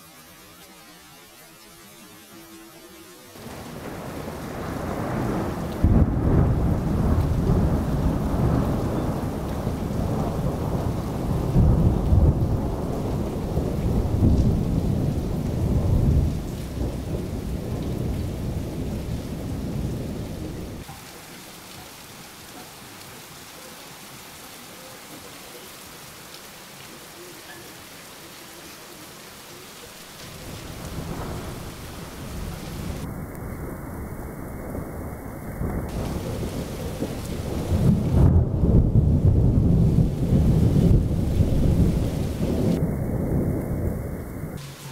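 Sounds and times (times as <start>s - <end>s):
steady rain: 0.0s - 44.9s
rolling thunder: 3.4s - 20.8s, 30.3s - 44.6s.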